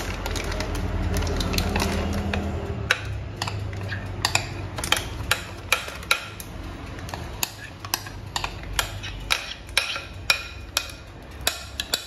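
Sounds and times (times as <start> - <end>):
spoon scraping glass bowl: 1.6 - 5.0.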